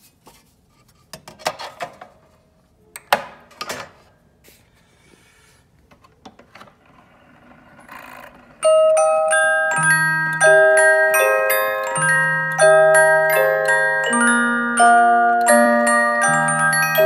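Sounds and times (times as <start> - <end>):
music box playing: 8.4 - 17.0.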